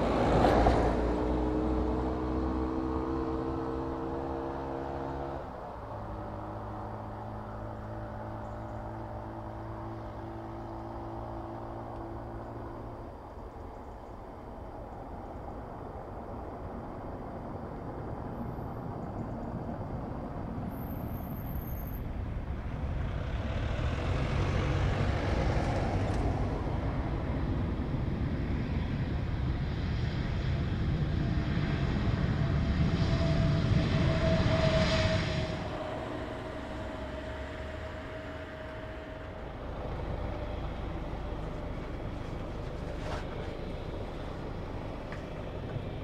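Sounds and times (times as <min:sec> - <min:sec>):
steady engine whine: 0:00.0 - 0:46.0
jet engines roaring: 0:22.0 - 0:46.0.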